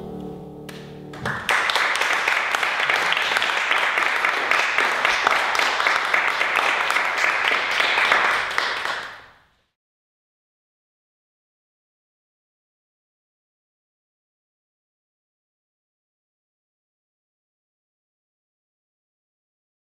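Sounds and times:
audience applause: 1.2s - 9.3s.

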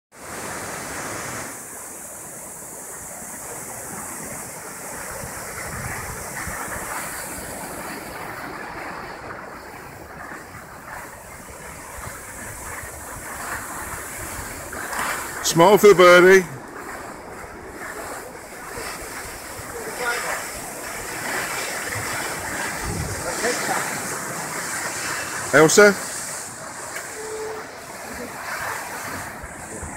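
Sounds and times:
skis gliding over snow: 2.6s - 29.9s
wind across microphone: 3.5s - 15.4s, 16.5s - 29.9s.

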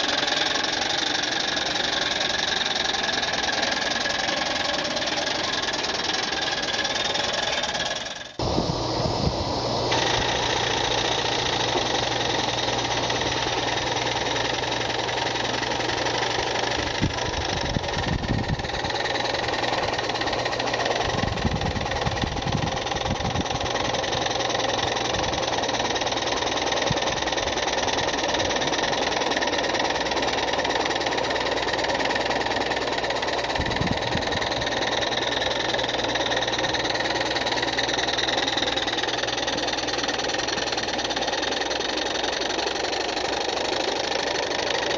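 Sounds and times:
steam hiss: 0.0s - 27.1s
steam engine exhaust chuffing: 0.0s - 44.9s.

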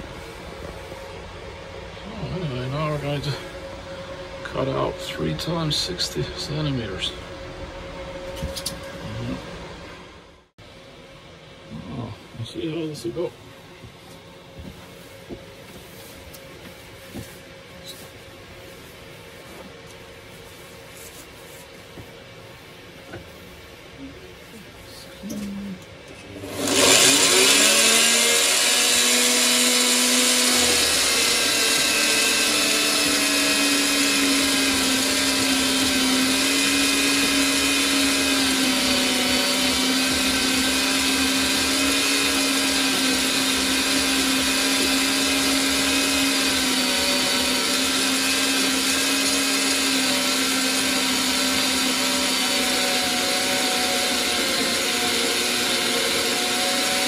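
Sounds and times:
band saw cutting steel: 2.2s - 9.3s, 26.2s - 57.0s.

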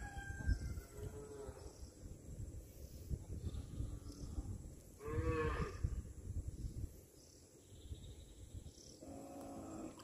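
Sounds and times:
cow mooing: 5.0s - 5.8s.

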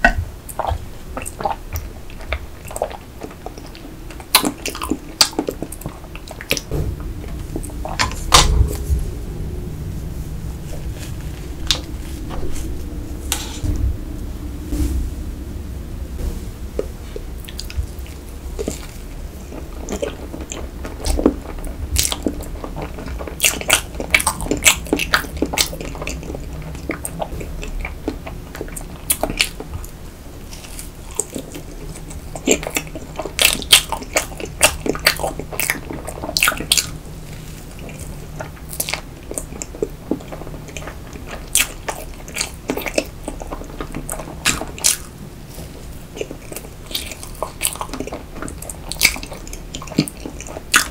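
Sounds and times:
close-miked chewing: 18.6s - 37.0s, 37.6s - 50.9s.

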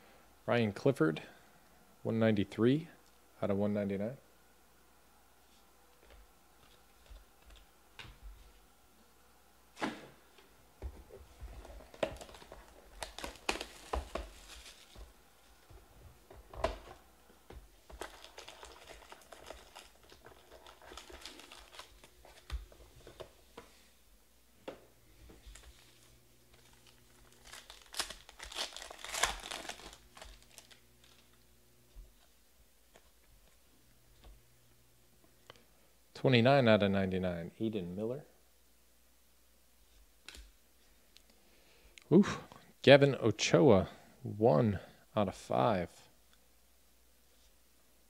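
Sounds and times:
cardboard and card rustles: 10.9s - 17.0s, 17.6s - 23.7s
plastic wrapper crinkling and tearing: 11.6s - 15.1s, 17.8s - 23.2s, 25.4s - 31.4s.

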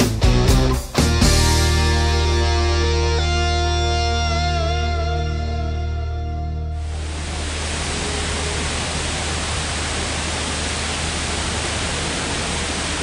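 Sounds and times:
guitar music: 0.0s - 7.5s
waterfall rushing: 6.7s - 13.0s.

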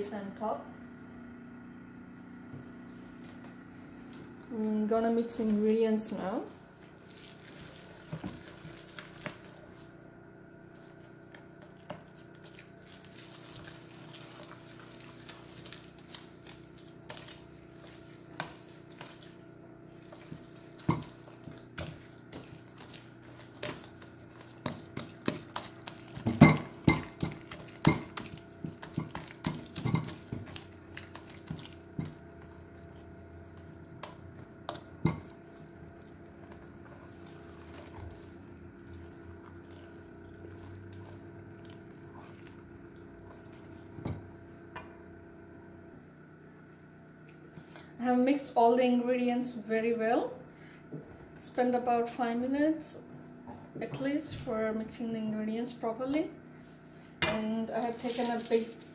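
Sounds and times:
faint steady hum: 0.0s - 58.9s
whisk clinking in metal bowl: 24.6s - 32.2s.

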